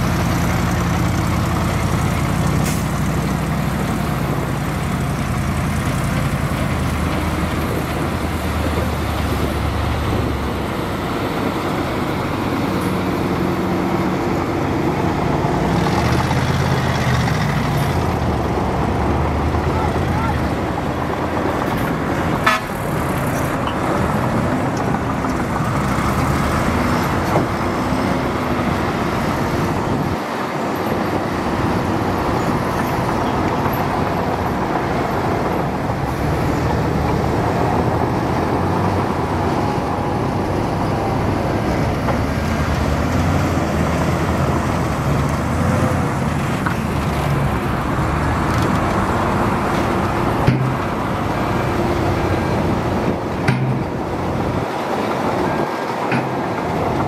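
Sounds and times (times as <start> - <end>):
bulldozer diesel engine under load: 0.0 - 57.0
sharp knocks: 53.4 - 53.9.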